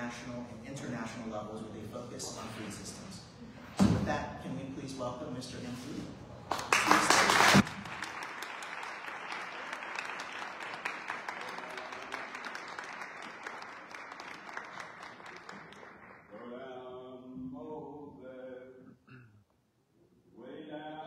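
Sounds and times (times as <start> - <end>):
audience applauding: 6.5 - 16.3.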